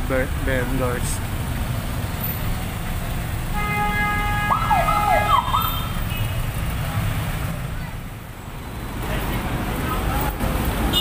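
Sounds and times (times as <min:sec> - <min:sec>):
street traffic rumbling: 0:00.0 - 0:11.0
electronic vehicle siren: 0:04.4 - 0:05.8.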